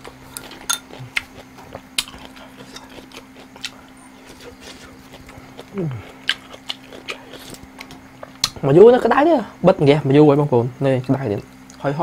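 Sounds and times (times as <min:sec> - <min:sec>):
man chewing food: 0:00.0 - 0:08.7
faint steady hum: 0:00.0 - 0:12.0.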